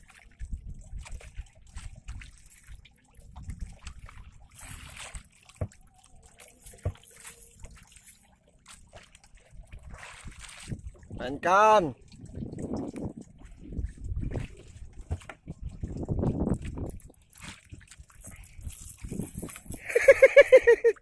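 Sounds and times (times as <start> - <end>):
water lapping against boat hull: 0.0 - 21.0.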